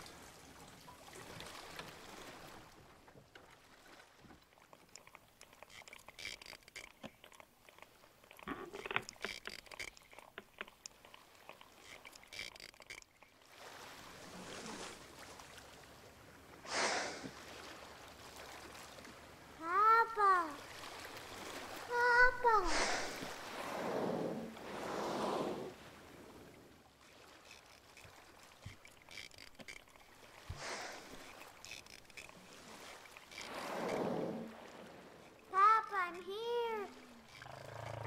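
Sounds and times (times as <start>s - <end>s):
faint water lapping: 0.0s - 38.0s
small clicks and knocks: 4.2s - 13.3s, 27.4s - 30.2s.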